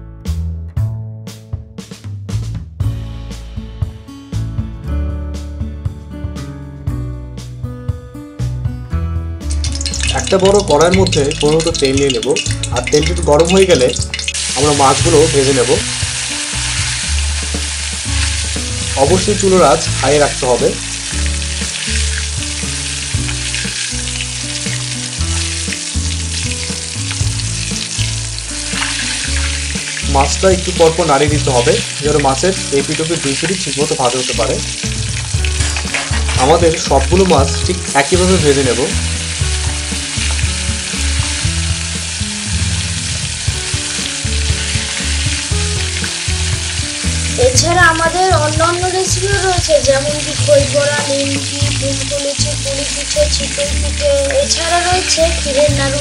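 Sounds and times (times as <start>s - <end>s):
fish sizzling in oil: 9.4s - 56.0s
metal spatula clicking on pan: 9.5s - 13.2s.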